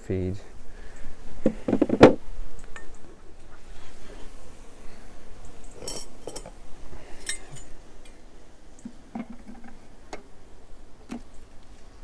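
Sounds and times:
hive tool clicking on wooden frames: 11.0 - 11.7.

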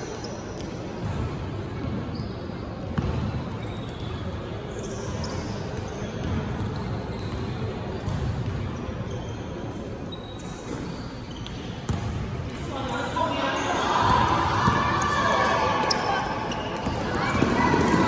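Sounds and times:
basketball bouncing on gym floor: 2.9 - 3.4, 5.3 - 8.7, 11.9 - 12.2, 16.6 - 18.0
murmur of voices: 11.2 - 18.0.

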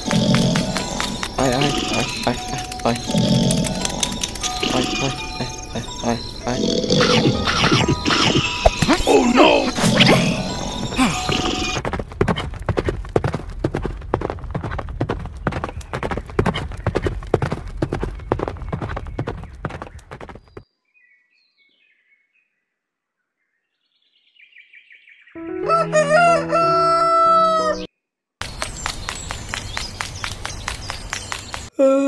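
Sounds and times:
horse hooves clip-clopping: 0.0 - 4.8, 11.3 - 20.6, 28.4 - 31.7.

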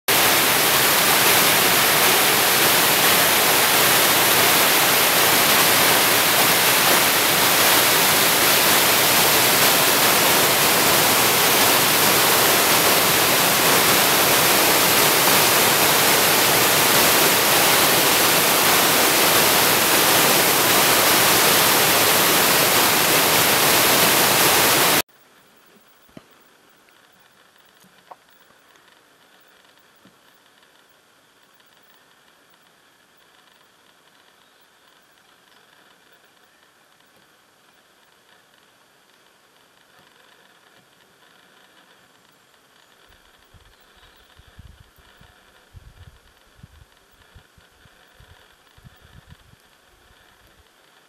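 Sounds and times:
stream cascading over rocks: 0.1 - 25.0.

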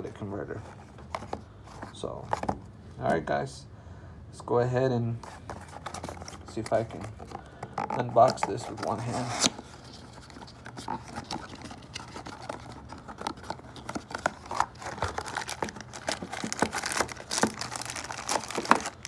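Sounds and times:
cardboard box rustling and scraping: 5.2 - 19.0
plastic bag crinkling: 10.0 - 19.0.

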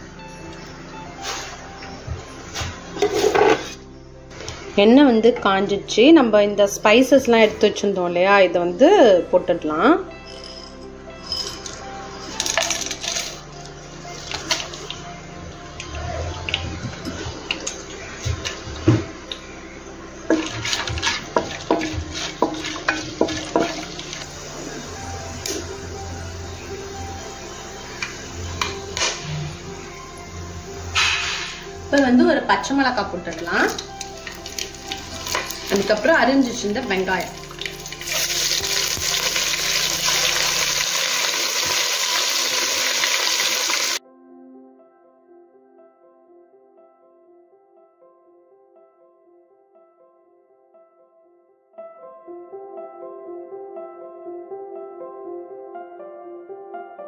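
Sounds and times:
soft instrumental music: 0.0 - 57.0
spices sizzling in oil: 20.1 - 44.0
wooden spoon stirring in pan: 20.3 - 24.2.

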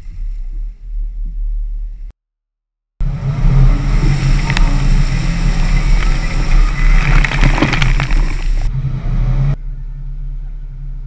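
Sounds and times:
off-road vehicle engine rumbling: 0.0 - 2.1, 3.0 - 11.0
mud and water splashing: 3.2 - 8.7.

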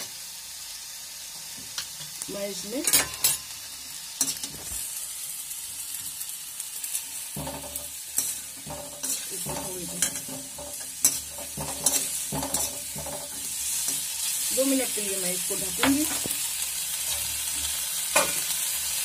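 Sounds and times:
vegetables sizzling in a pan: 0.0 - 19.0
spoon scraping and knocking pan: 7.3 - 14.1, 17.0 - 18.5.

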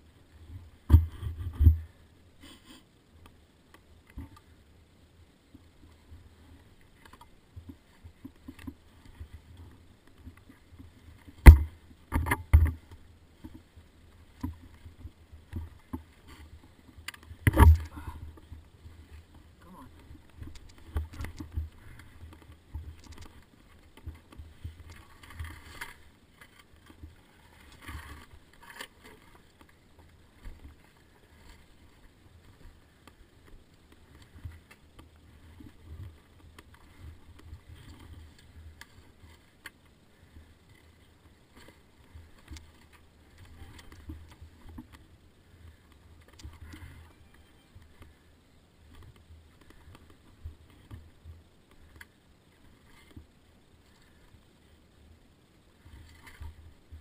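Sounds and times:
knocks and clatter on rocks: 11.3 - 12.8, 17.1 - 18.4.

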